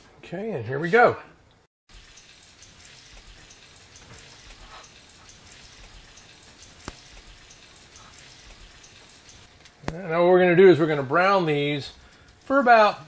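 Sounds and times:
chicken frying in oil: 1.9 - 10.1.

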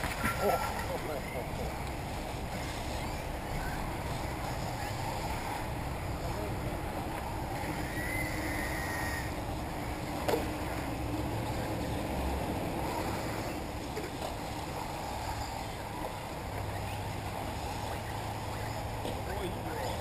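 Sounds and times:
electric rc buggies racing: 0.0 - 20.0.

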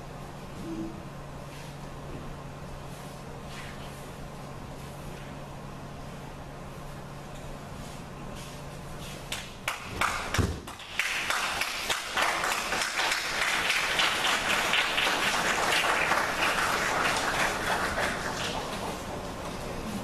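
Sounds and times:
audience applause: 9.7 - 19.7
heavy thud on mat: 10.4 - 10.7.

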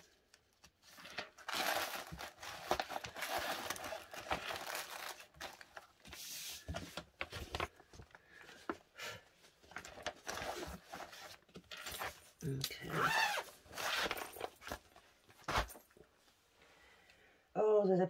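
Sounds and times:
plastic bag crinkling: 1.1 - 5.9.

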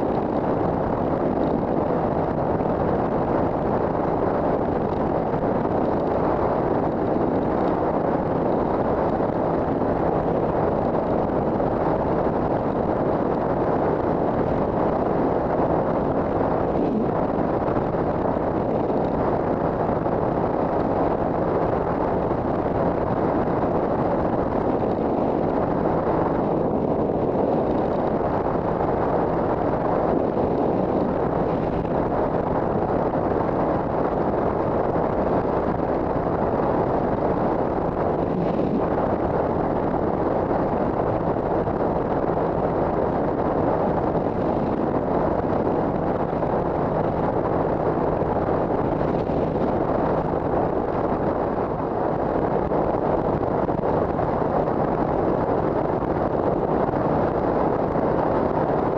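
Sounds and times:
wind rushing on helmet microphone: 0.0 - 58.9.

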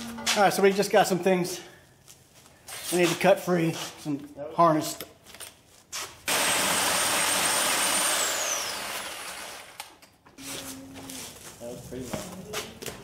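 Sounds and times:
cut-off tool whining: 6.3 - 9.9.

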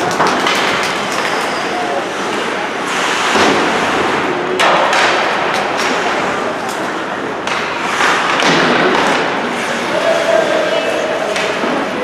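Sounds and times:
sticks and puck knocking boards: 0.0 - 1.6, 4.6 - 6.8, 7.4 - 9.4
crowd voices: 0.0 - 12.0
skates on ice: 0.0 - 12.0.

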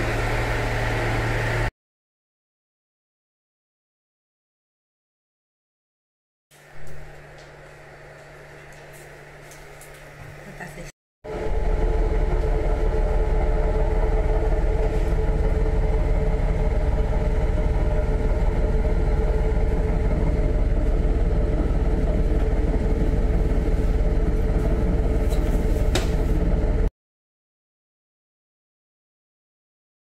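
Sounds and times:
diesel railcar engine drone: 0.0 - 1.7, 6.6 - 26.9.

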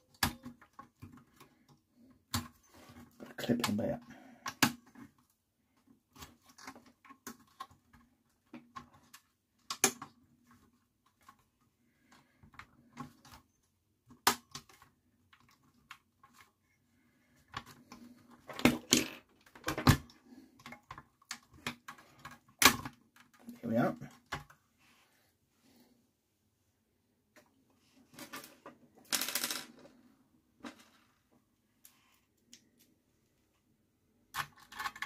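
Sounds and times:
clicks and knocks of handled parts: 0.0 - 13.5, 17.3 - 24.6, 34.3 - 35.0.

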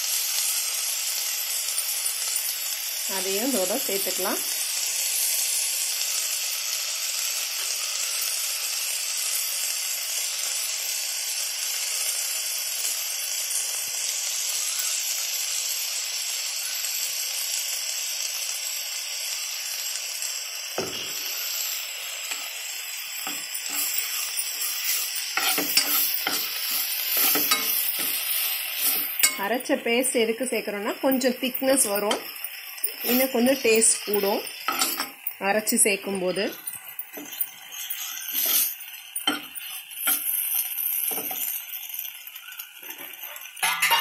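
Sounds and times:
vegetables sizzling in pan: 0.0 - 44.0
spatula scraping pan: 20.8 - 30.1, 31.1 - 35.2, 36.3 - 41.6.

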